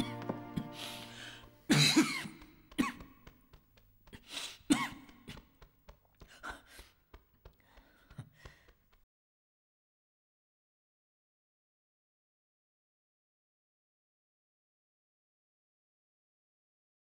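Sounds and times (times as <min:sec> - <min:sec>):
person coughing: 0:01.7 - 0:03.2, 0:04.5 - 0:05.5.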